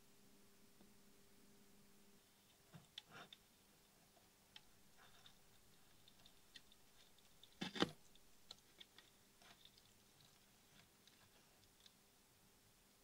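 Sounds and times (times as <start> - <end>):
soldering clicks and crackles: 4.2 - 12.0.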